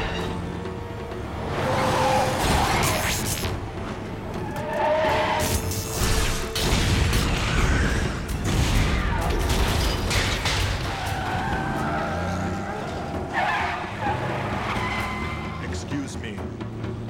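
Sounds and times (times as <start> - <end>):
tyres skidding and squealing: 0.0 - 17.0
crashing and explosions: 5.4 - 11.4.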